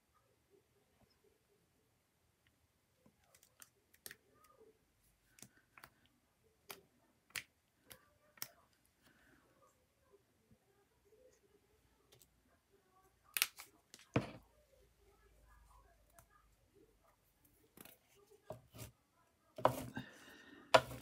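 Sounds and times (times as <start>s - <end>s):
plastic bottle dabbing on paper: 19.6s - 20.0s.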